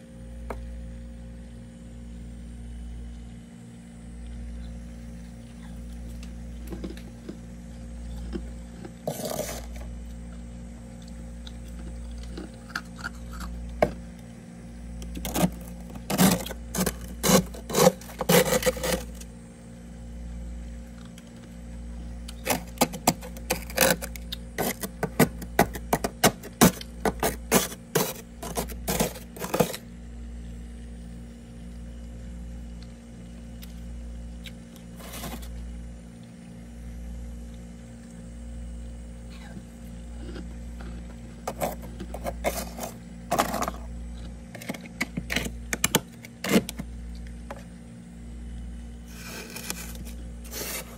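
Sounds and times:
steady low hum: 0:00.0 - 0:50.9
spatula scraping frost: 0:09.0 - 0:09.8, 0:15.2 - 0:19.3, 0:22.4 - 0:29.8, 0:35.0 - 0:35.5, 0:41.4 - 0:43.9, 0:49.1 - 0:50.9.

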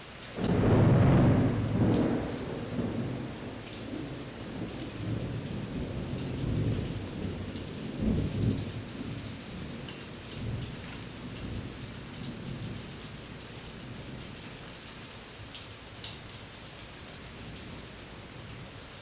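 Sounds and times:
steady rain: 0:00.0 - 0:19.0
low rolling thunder: 0:00.4 - 0:14.6.

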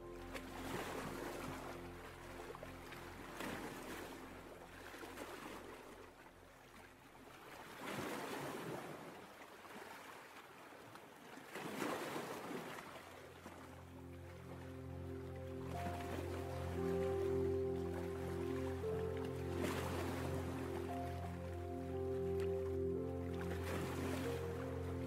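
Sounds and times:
soft music: 0:00.0 - 0:07.8, 0:13.0 - 0:25.0
ocean waves breaking: 0:00.1 - 0:25.0.

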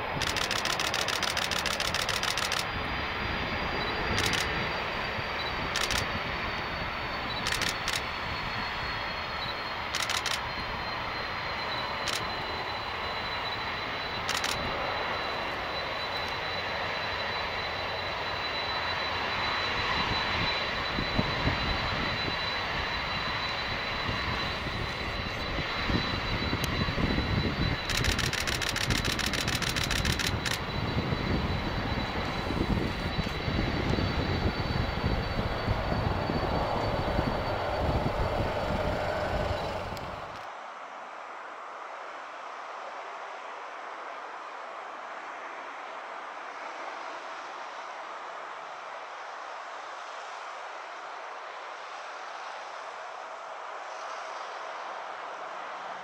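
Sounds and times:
jet engines at takeoff thrust: 0:00.0 - 0:56.0
sharp clicks: 0:00.2 - 0:02.7, 0:04.1 - 0:04.5, 0:05.8 - 0:06.1, 0:07.4 - 0:08.0, 0:09.9 - 0:10.4, 0:12.0 - 0:12.3, 0:14.3 - 0:14.6, 0:27.9 - 0:30.6.

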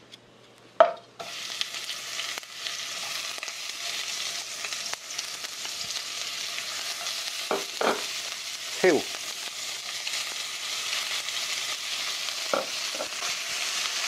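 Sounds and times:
meat sizzling in a wok: 0:01.2 - 0:14.0.

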